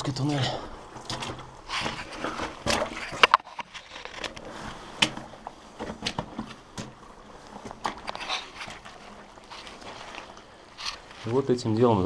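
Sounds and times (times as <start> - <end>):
scrapes and shuffles: 0.2 - 11.6
footsteps on wet ground: 4.4 - 11.4.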